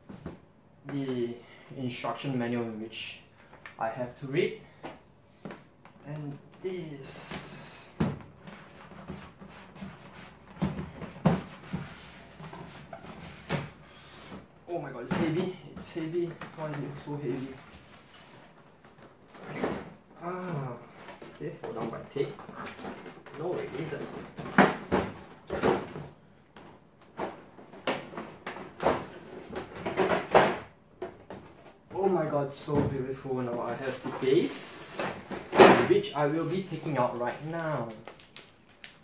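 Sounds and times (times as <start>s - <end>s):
plastic packaging rustling: 36.3s - 39.0s.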